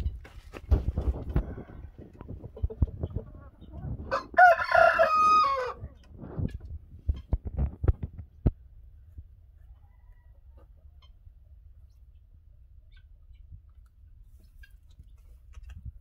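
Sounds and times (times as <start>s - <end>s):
rooster crowing: 4.1s - 5.8s.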